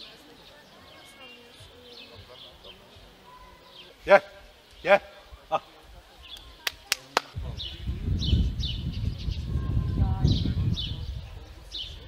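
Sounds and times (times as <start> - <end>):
low rumbling noise: 7.4 - 12.0.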